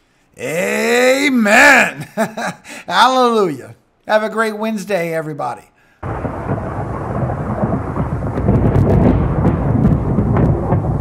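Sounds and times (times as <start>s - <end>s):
rain: 6.0s - 11.0s
thunder crackles: 6.0s - 11.0s
thunder rumbling: 6.0s - 11.0s.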